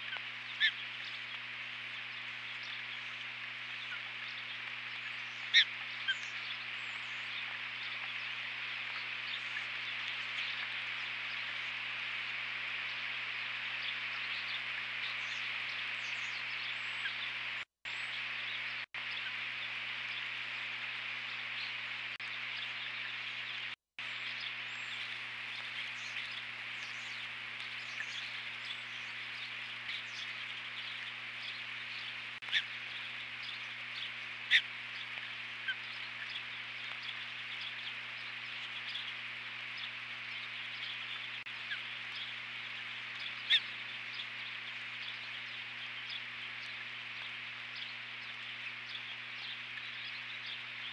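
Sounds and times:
low electrical hum: 0.0 - 50.9
rain hissing on microphone: 0.0 - 50.9
faint high bird chirps: 21.2 - 50.9.

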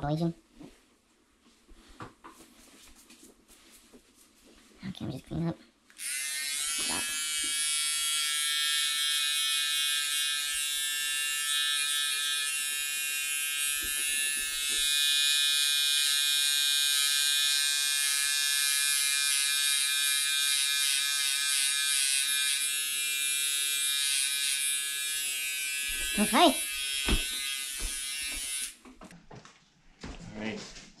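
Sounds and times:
electric hair clippers buzzing: 5.9 - 28.8.

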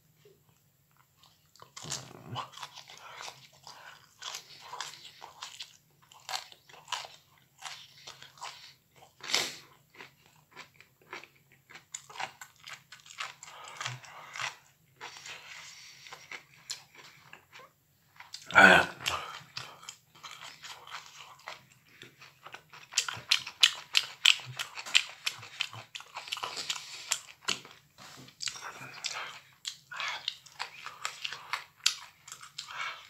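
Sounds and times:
chewing and crunching broccoli: 0.5 - 33.0
mouth noises: 18.4 - 19.4.

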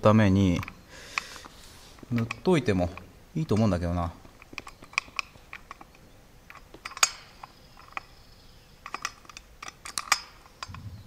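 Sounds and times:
hands clicking and tapping engine: 0.6 - 8.2.

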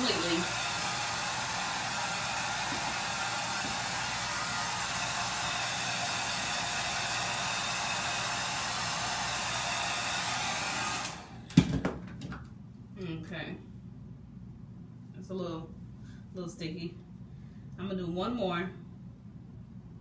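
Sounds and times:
hair dryer blowing: 0.0 - 11.5.

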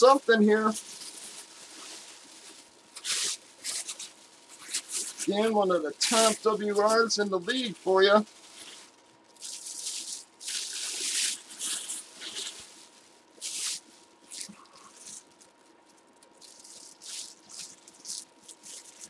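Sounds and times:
bags rustling and crinkling: 0.0 - 19.0.

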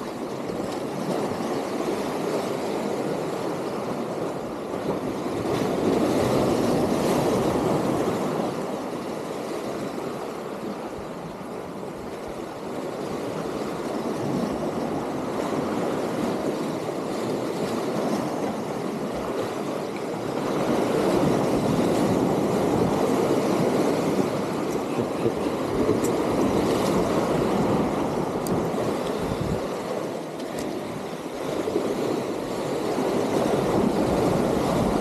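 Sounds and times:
waves breaking on concrete: 13.2 - 35.0.

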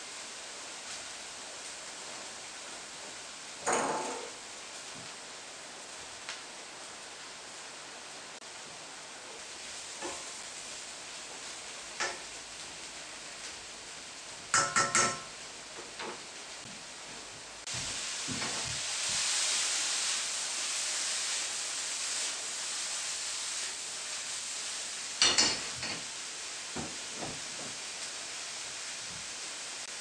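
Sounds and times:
mushrooms sizzling in a pan: 0.0 - 30.0.

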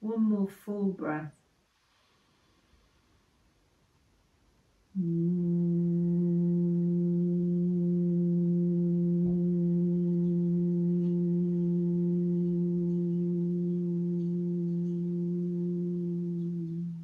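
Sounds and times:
woman humming low note: 5.0 - 17.0.

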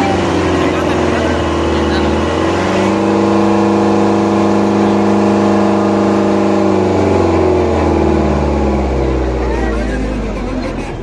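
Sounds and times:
tractor diesel engine revving: 0.0 - 11.0.

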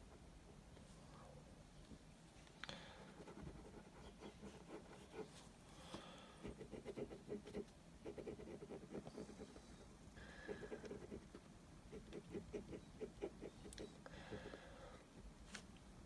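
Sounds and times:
drawing tip scratching on paper: 6.5 - 9.6.

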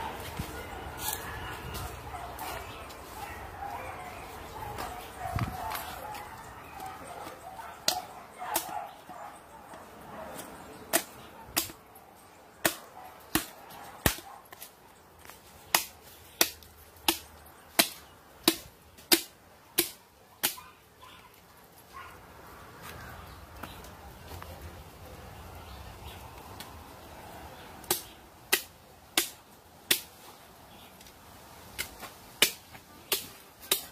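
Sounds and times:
machete chopping carcass: 12.6 - 14.2, 15.7 - 20.6, 27.9 - 30.1, 31.8 - 33.9.

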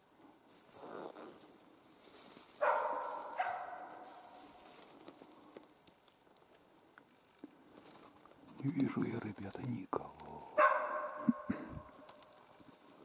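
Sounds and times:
short rustle: 0.5 - 5.6
dog barking: 2.6 - 4.3, 10.6 - 11.5.

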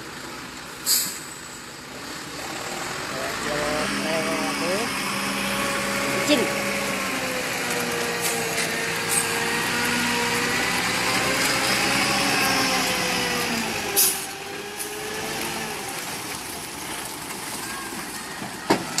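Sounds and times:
diesel truck engine running: 0.0 - 19.0
short loud hiss: 0.8 - 1.4.

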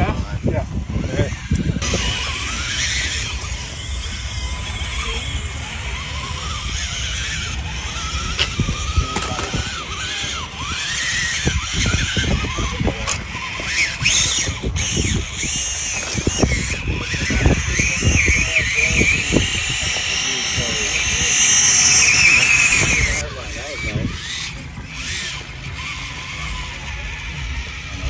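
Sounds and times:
wind rumble on microphone: 0.0 - 3.6, 5.9 - 21.3
toy car electric motor whining: 0.0 - 28.0.

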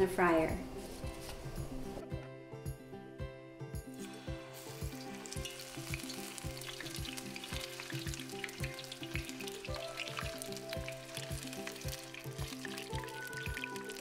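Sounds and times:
background music with beat: 0.8 - 14.0
deep-frying sizzle and crackle: 3.9 - 14.0.

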